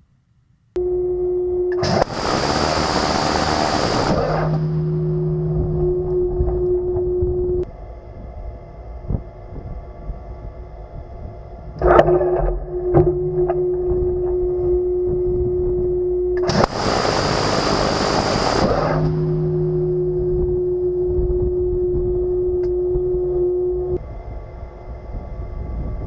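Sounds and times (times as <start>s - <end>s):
motor whine: 0.8s - 26.0s
rotary cannon firing burst: 1.8s - 5.6s, 16.4s - 20.0s.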